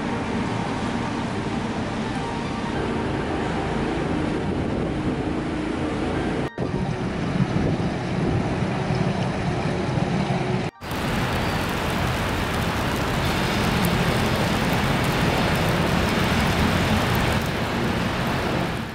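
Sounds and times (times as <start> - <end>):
distant traffic rumble: 0.0 - 18.9
wind-like hiss: 10.8 - 18.9.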